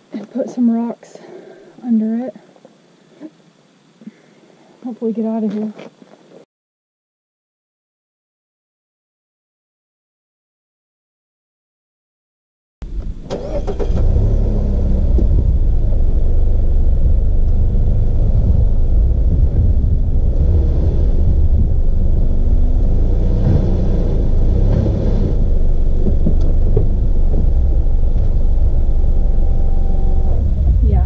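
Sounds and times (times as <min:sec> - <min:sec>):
car engine rumbling under throttle: 0:12.8 - 0:31.0.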